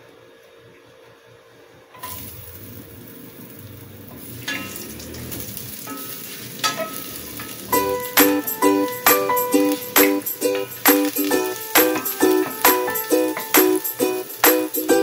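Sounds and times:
ginger sizzling in hot oil: 2.0s - 15.0s
background music with shaker: 7.1s - 15.0s.

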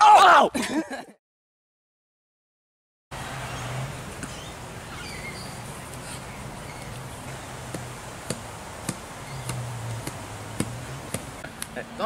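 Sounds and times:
wooden stick tapping: 7.7s - 11.7s.

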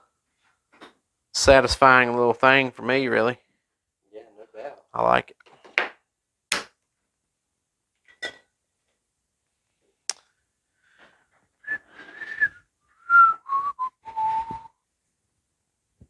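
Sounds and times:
breathing: 10.7s - 12.4s
person whistling: 11.6s - 14.8s.

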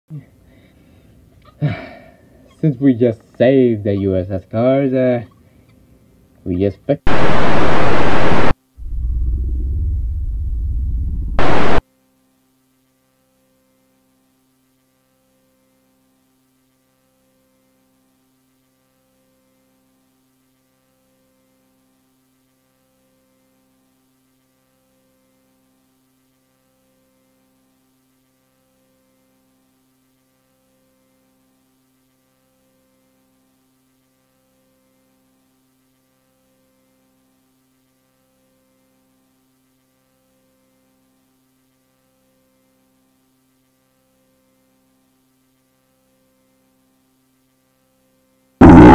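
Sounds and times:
faint electrical hum: 0.1s - 48.9s
pulsing low tone: 7.1s - 11.8s, 48.6s - 48.9s.

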